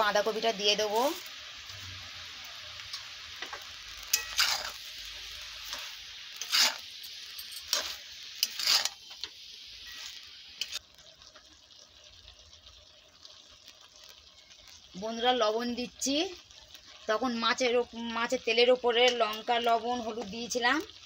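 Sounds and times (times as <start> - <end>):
cabbage sizzling in oil: 0.0 - 21.0
spatula scraping pan: 3.4 - 10.8.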